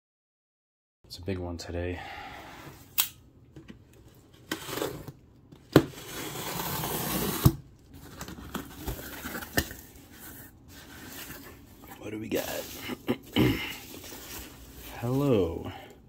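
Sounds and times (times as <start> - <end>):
knife scraping packing tape: 6.0 - 7.6.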